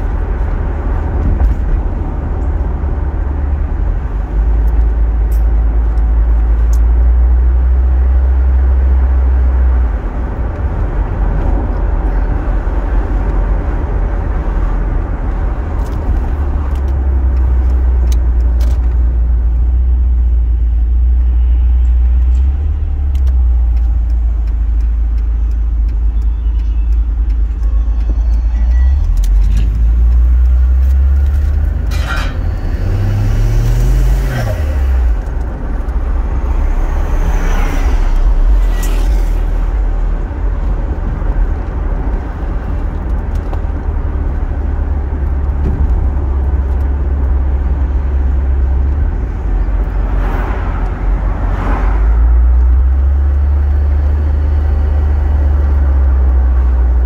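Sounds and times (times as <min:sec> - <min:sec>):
car engine and road drone: 0:00.0 - 0:57.0.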